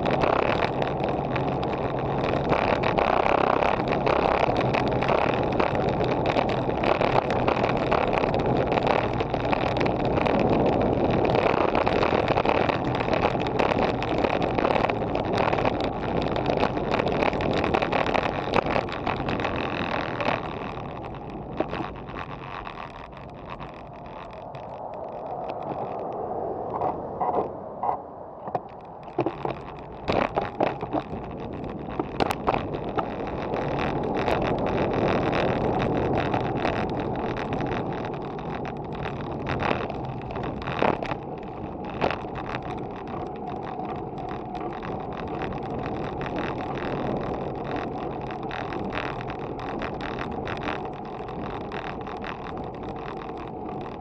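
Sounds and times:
bike tyres on road: 0:00.0 - 0:54.0
rushing wind: 0:00.0 - 0:54.0
bike knocks and rattles: 0:28.4 - 0:54.0.

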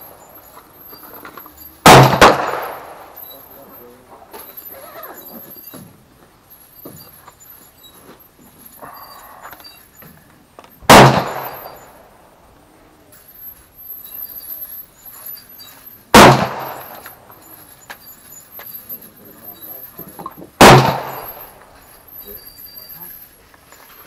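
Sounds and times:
gunshots: 0:01.8 - 0:03.5, 0:10.8 - 0:12.0, 0:16.1 - 0:17.3, 0:20.6 - 0:21.7.

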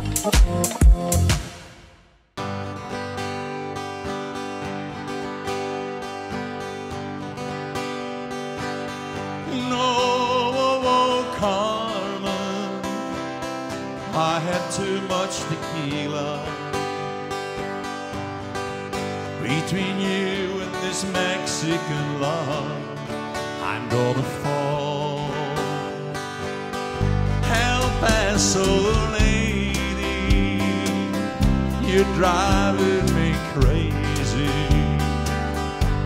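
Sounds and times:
acoustic guitar: 0:00.0 - 0:01.8, 0:02.4 - 0:36.0
bass guitar: 0:00.0 - 0:01.8, 0:25.8 - 0:36.0
drums: 0:00.0 - 0:02.2, 0:27.4 - 0:36.0.

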